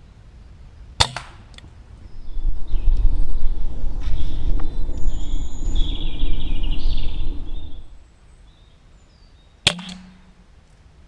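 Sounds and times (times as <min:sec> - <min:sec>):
low rumble with hiss: 0:00.0 - 0:11.0
air rifle shot: 0:01.0 - 0:01.6, 0:09.7 - 0:10.4.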